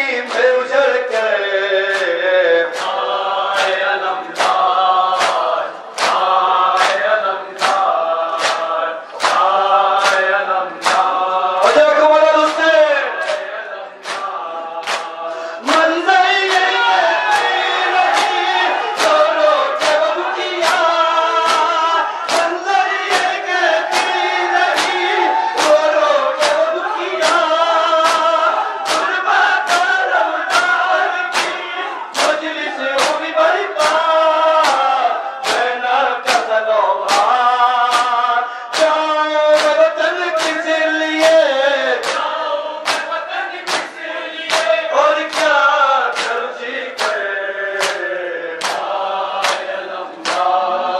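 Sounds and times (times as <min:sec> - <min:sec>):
men chanting in chorus: 0:00.0 - 0:50.9
hands slapping bare chests: 0:01.9 - 0:11.8, 0:13.2 - 0:15.1, 0:17.3 - 0:21.7, 0:23.1 - 0:25.8, 0:28.9 - 0:31.6, 0:33.0 - 0:33.2, 0:33.8 - 0:35.7, 0:36.3 - 0:36.5, 0:37.1 - 0:39.0, 0:42.0 - 0:47.2, 0:47.8 - 0:50.6.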